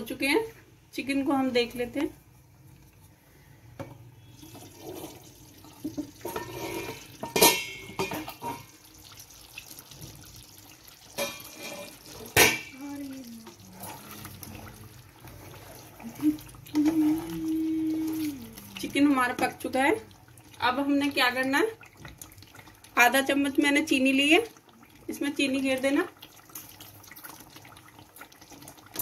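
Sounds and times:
spatula stirring thick gravy: 8.2 - 17.4.

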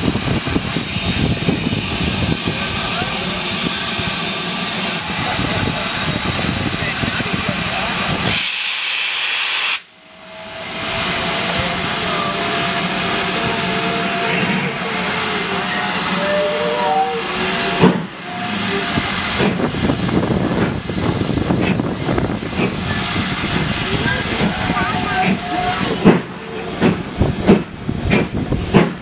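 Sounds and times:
steam train hissing: 0.0 - 29.0
faint wavering high tones: 15.4 - 18.8.

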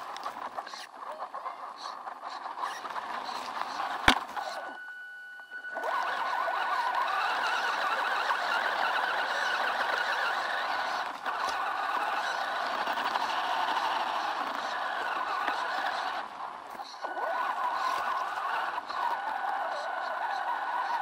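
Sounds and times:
rc truck motor whining: 0.0 - 21.0.

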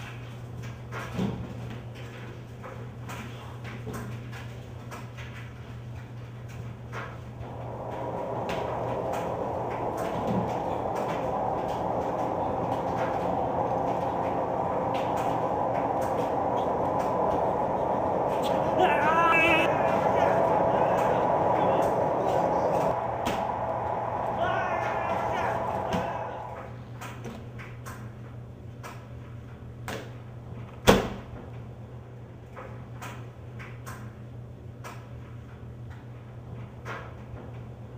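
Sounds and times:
steady low hum: 1.8 - 27.1
low mechanical rumble: 5.9 - 27.0.

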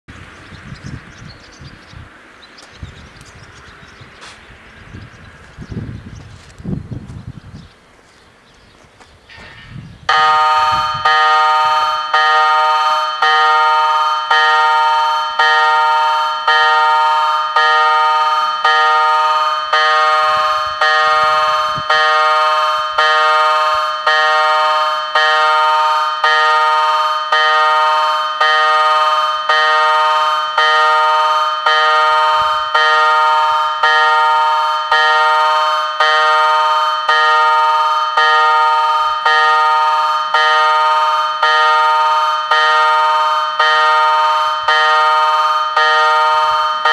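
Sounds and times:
level crossing warning bell: 10.1 - 46.9.

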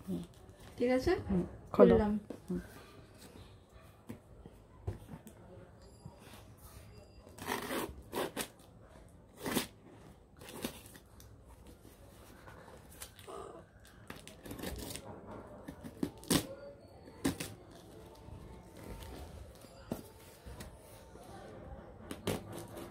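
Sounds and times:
scissors cutting packing tape: 7.4 - 8.6, 15.7 - 16.6.

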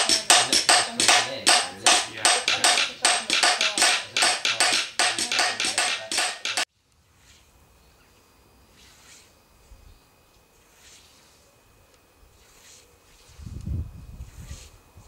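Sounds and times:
hammers peening scythe blades: 0.0 - 6.7
faint outdoor background: 0.0 - 15.0.

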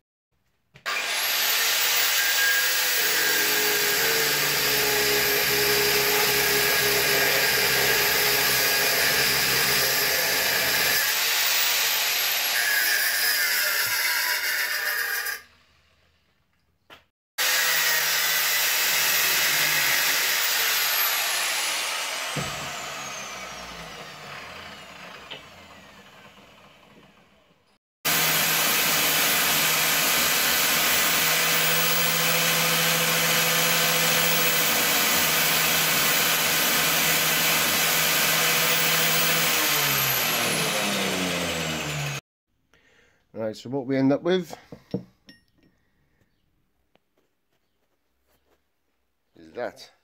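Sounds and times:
angle grinder grinding steel: 0.9 - 15.6, 17.4 - 27.4, 28.1 - 42.2.

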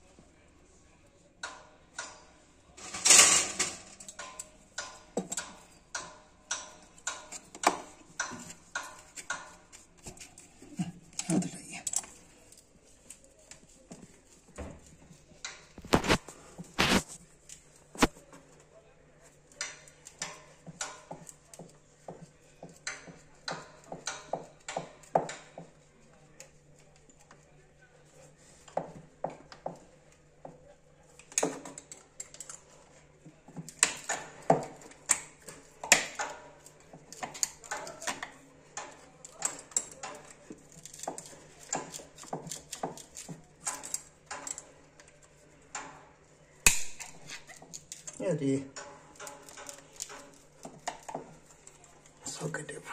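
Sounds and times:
hands twisting plastic pipe fitting: 33.5 - 46.0.

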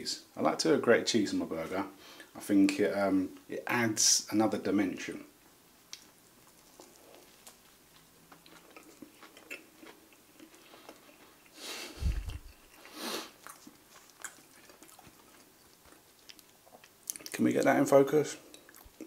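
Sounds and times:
chewing food: 5.9 - 17.4, 18.4 - 19.0.

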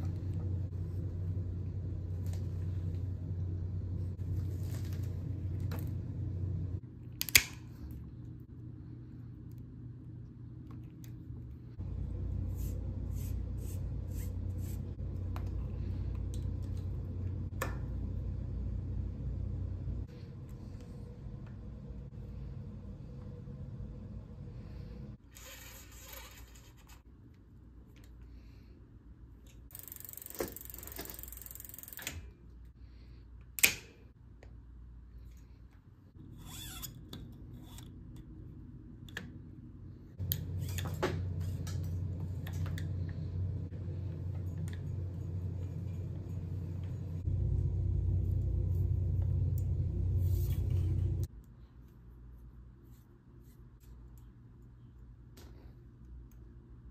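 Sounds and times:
steady low hum: 0.0 - 25.7, 27.0 - 56.9
bicycle gear cable ticking: 29.7 - 32.2.

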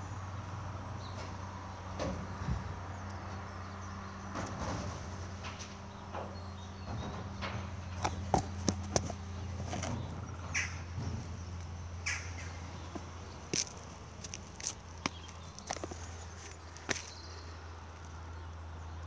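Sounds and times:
distant truck engine running: 0.0 - 19.0.

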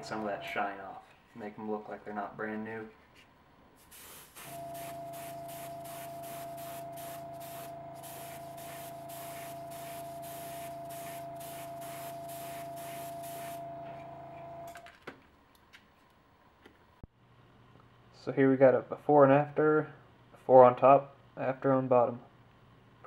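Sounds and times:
compressor hum: 0.0 - 0.8, 3.8 - 14.8
airbrush spraying hiss: 3.8 - 13.7.

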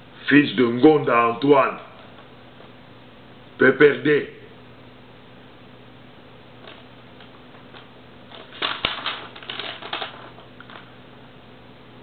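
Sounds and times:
faint low hum: 0.0 - 12.0
paper rustling: 6.6 - 10.9.

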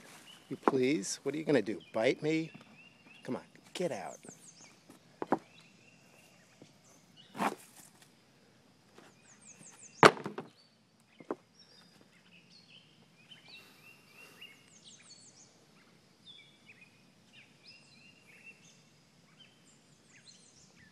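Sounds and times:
birds singing: 0.0 - 8.3, 9.0 - 20.9
sharp knocks: 10.0 - 10.5.

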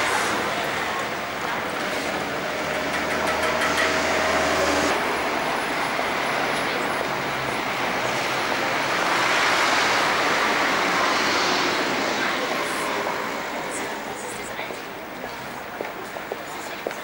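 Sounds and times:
vehicle engine humming: 0.0 - 15.7
passing traffic: 0.0 - 17.0.

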